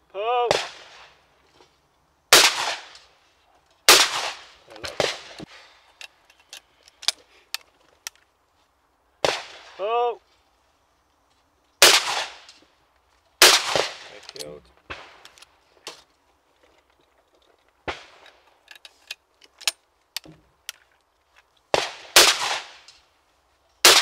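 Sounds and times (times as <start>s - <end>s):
person shouting: 0.1s - 0.5s, 9.8s - 10.2s
sharp crack: 0.4s - 1.2s, 2.3s - 3.2s, 3.8s - 6.1s, 9.2s - 10.0s, 11.8s - 12.7s, 13.4s - 16.0s, 17.8s - 18.9s, 21.6s - 23.1s
shotgun shots: 0.5s - 1.2s, 2.3s - 3.0s, 3.9s - 5.4s, 9.2s - 9.8s, 11.8s - 12.5s, 13.4s - 14.3s, 21.7s - 22.9s
metallic clicks of gun reloading: 4.7s - 8.3s, 16.8s - 21.4s.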